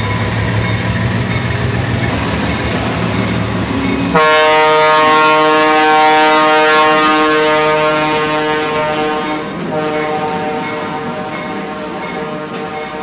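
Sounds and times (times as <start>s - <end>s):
locomotive air horn blast: 4.1s - 13.0s.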